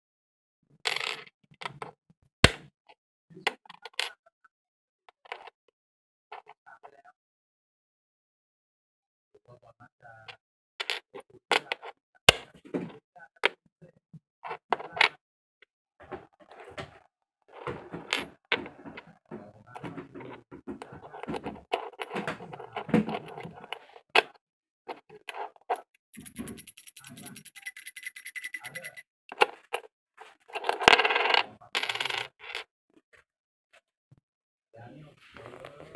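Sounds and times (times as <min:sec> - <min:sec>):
fast rattle: 0:26.2 - 0:29.0.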